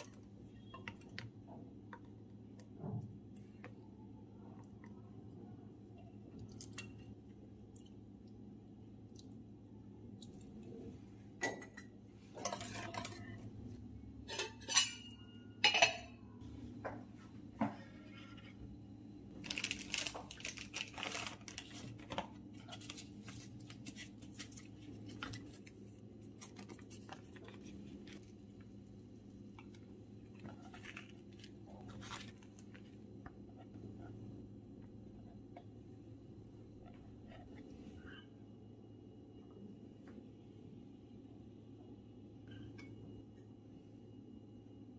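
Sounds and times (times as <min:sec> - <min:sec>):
low steady hum: 0:00.0 - 0:44.9
utensils clinking against pan: 0:14.2 - 0:16.2
plastic and paper crinkling: 0:19.4 - 0:28.7, 0:29.7 - 0:33.0.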